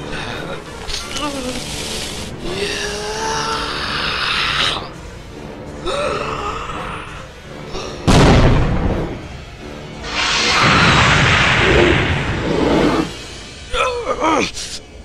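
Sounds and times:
loud boom: 0:10.0 - 0:13.5
pitched alien screeches: 0:10.1 - 0:13.2.

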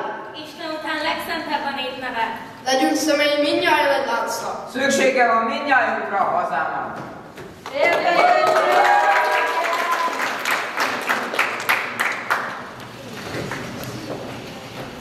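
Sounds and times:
audience applauding: 0:07.7 - 0:14.4.

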